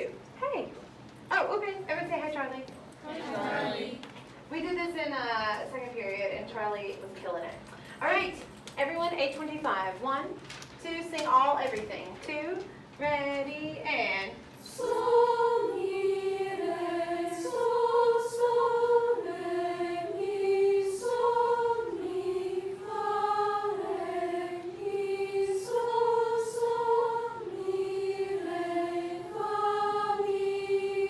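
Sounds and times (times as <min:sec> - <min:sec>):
choir singing a cappella: 0:03.0 - 0:04.0, 0:14.6 - 0:31.0.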